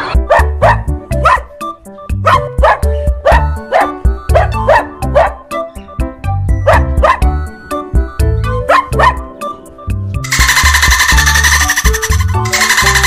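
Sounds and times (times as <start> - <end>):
upbeat music with heavy beat: 10.2 - 13.0.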